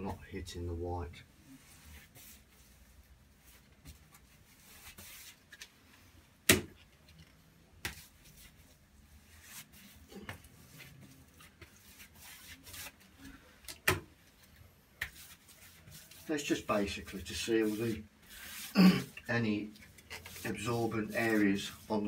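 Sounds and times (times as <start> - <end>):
brush swishing on wall: 1.3 - 5.6, 7.9 - 13.5, 14.4 - 22.0.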